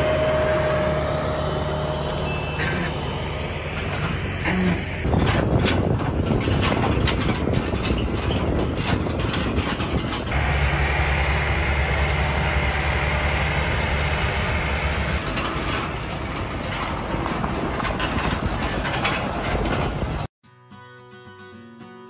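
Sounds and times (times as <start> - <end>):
low engine drone: 0.0 - 6.1, 10.0 - 20.1
truck body rattling: 3.3 - 20.3.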